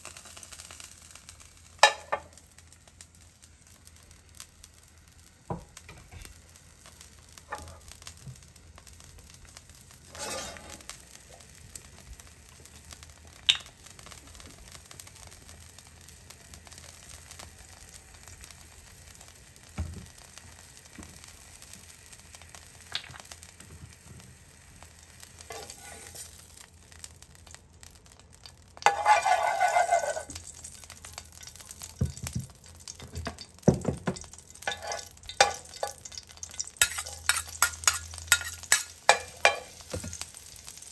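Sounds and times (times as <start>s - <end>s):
oil sizzling in a frying pan: 0.0s - 40.9s
metal spoon clicking against pan: 34.7s - 39.8s.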